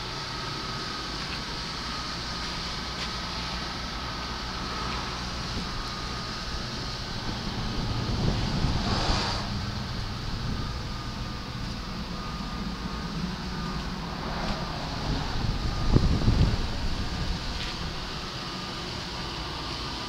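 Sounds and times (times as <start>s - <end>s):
steady low rumble: 0.0s - 20.0s
wind buffeting microphone: 5.2s - 18.4s.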